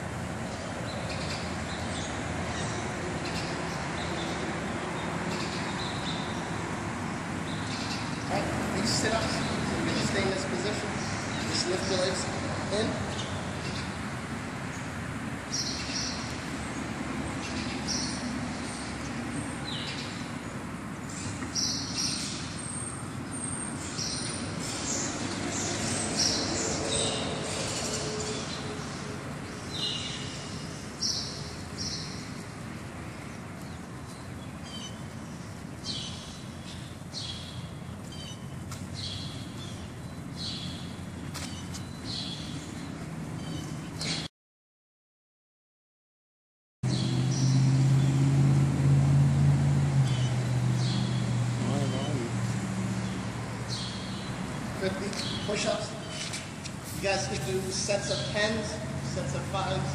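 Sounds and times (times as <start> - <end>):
outdoor background hum: 0.0 - 44.3
birds chirping: 0.4 - 44.3, 50.0 - 59.9.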